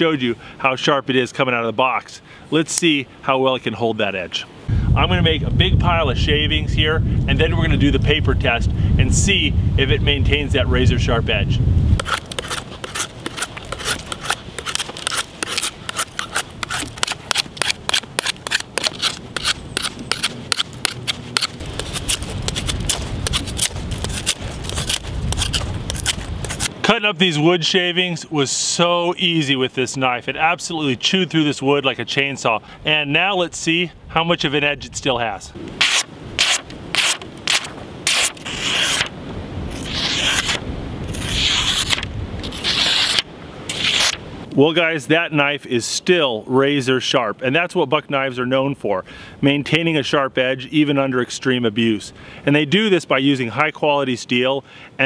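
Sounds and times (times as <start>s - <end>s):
knife shaving a wooden stick: 12.0s - 26.7s, 35.8s - 39.1s, 39.7s - 44.2s
paper rustling: 12.0s - 26.7s, 35.8s - 39.1s, 39.7s - 44.2s.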